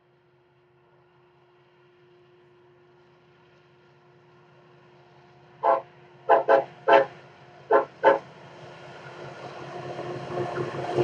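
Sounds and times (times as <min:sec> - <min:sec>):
diesel locomotives rumbling: 0:05.4 - 0:11.0.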